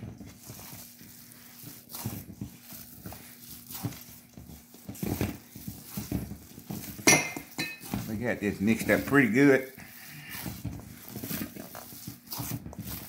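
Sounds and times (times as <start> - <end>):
spatula mixing meat in metal bowl: 0.0 - 13.0.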